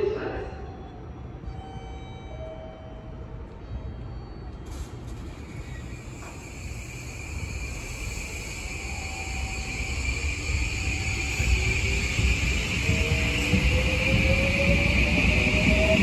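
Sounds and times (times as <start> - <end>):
electric train rumble and hiss: 4.6 - 16.0.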